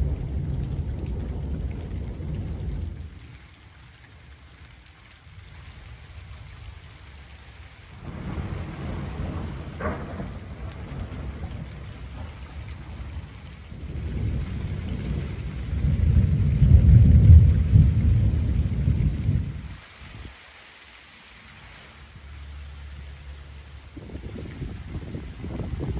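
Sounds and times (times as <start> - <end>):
rolling thunder: 0.0 - 3.3, 7.9 - 19.8, 23.2 - 25.9
thunder crackle: 0.0 - 3.3, 7.9 - 19.8.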